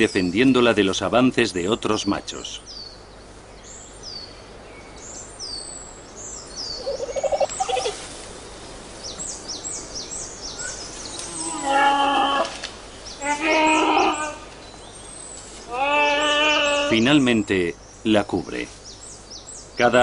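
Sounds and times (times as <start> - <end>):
birds chirping: 0.0 - 20.0
panda bleating calls: 11.3 - 12.6, 13.2 - 14.5, 15.7 - 17.1.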